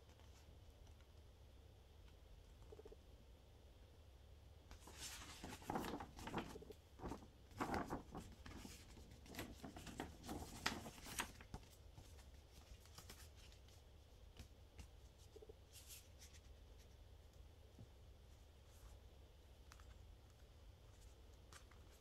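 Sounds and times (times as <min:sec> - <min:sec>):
paper rustling and crinkling: 0:04.8 - 0:16.9, 0:19.6 - 0:22.0.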